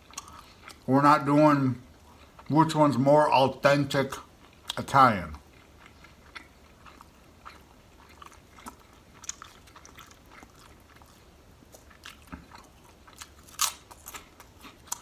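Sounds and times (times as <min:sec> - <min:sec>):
chewing with mouth clicks: 0:00.0 - 0:00.9, 0:01.8 - 0:02.6, 0:04.1 - 0:15.0.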